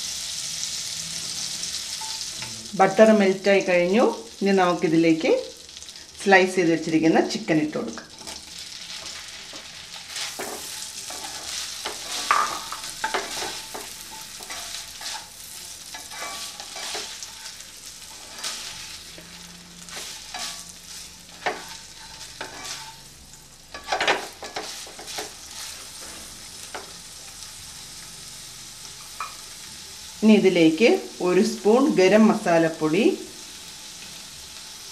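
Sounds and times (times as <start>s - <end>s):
chicken sizzling in butter: 8.0s - 34.9s.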